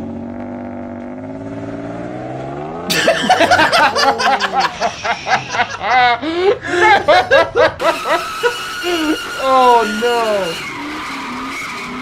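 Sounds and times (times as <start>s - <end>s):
car engine revving: 0.0s - 12.0s
loud laughter: 2.9s - 9.2s.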